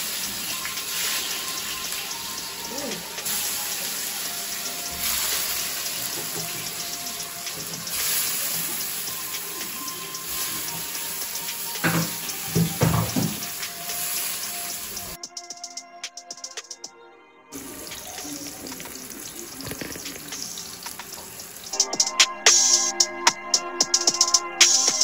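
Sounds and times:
tomato slices sizzling in oil: 0.0 - 15.2.

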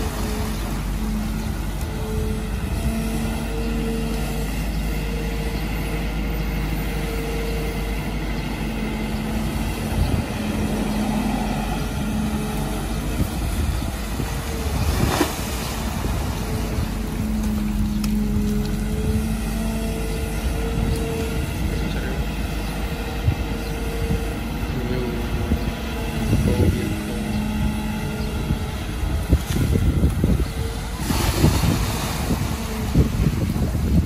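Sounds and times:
excavator diesel engine running: 0.0 - 34.0
hydraulic whine: 0.0 - 34.0.

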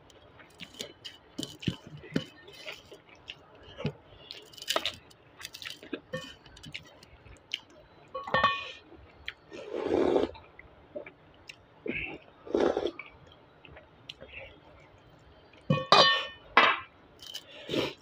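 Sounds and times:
person chewing: 0.1 - 7.8, 9.1 - 14.3.

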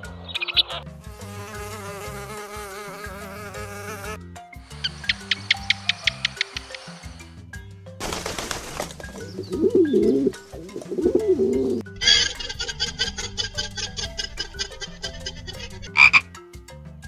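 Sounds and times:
low music bed: 0.0 - 17.0
pigeons cooing: 4.8 - 7.2, 9.0 - 16.1
fast run of clicks: 5.0 - 7.0.

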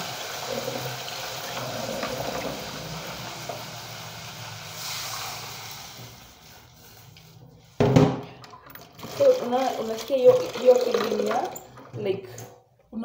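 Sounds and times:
onions sizzling in a pan: 0.0 - 6.7.

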